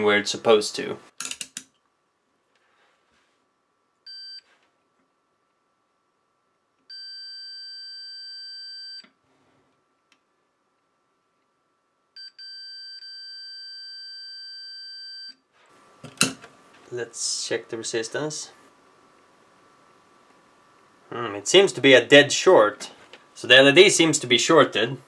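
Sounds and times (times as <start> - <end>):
multimeter continuity beeps: 4.1 - 4.4, 6.9 - 9.1, 12.2 - 15.4.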